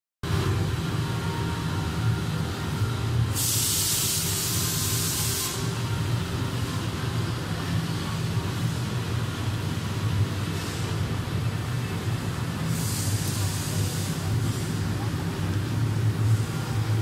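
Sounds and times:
machinery humming: 0.2 - 17.0
loud hissing: 3.3 - 5.8, 12.7 - 14.8.

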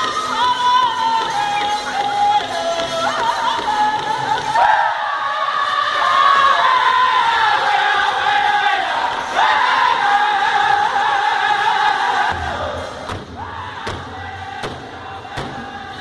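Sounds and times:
men singing in unison: 2.5 - 16.0
large drum beats: 12.3 - 16.0.

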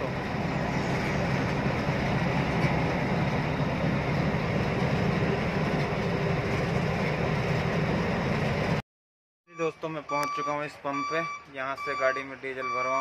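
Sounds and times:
diesel truck engine drone: 0.0 - 8.8.

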